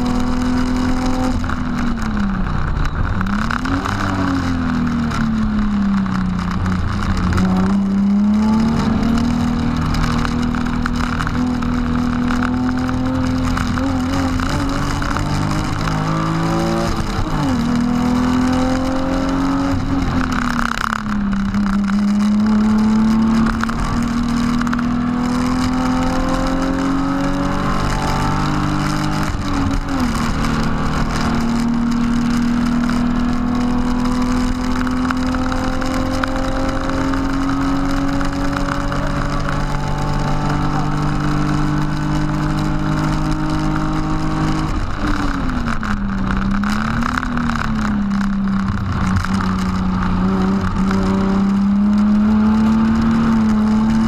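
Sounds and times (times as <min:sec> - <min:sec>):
car engine under full throttle: 0:00.0 - 0:54.0.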